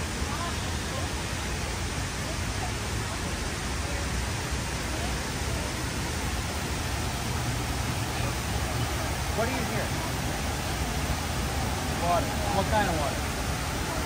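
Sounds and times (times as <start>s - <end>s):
waterfall rushing: 0.0s - 14.0s.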